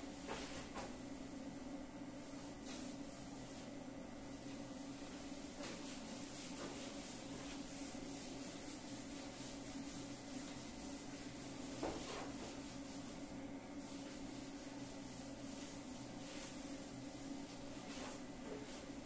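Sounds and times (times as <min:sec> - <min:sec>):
steady low hum: 0:00.0 - 0:19.0
duster wiping whiteboard: 0:00.1 - 0:01.2, 0:02.2 - 0:19.0.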